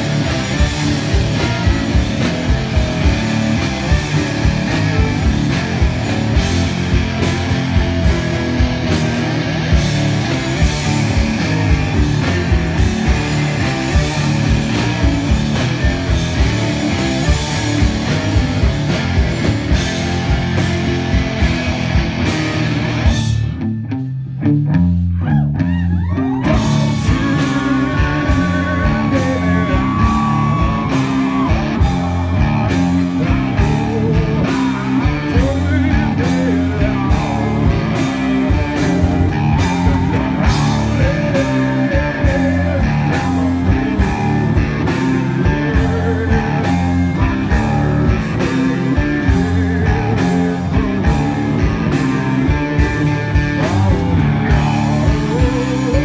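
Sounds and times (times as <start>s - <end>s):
drum beat: 0.0s - 23.0s, 26.5s - 56.0s
electric guitar: 0.0s - 56.0s
man singing: 26.3s - 56.0s.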